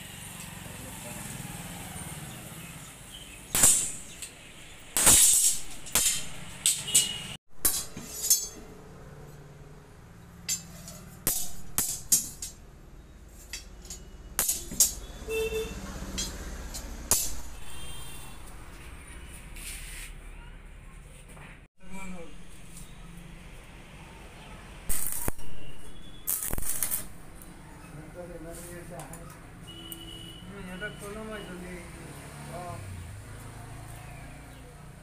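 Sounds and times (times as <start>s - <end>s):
metal bars clanking on anvil: 5.0s - 8.7s, 10.4s - 12.6s, 13.4s - 15.1s, 16.1s - 17.4s.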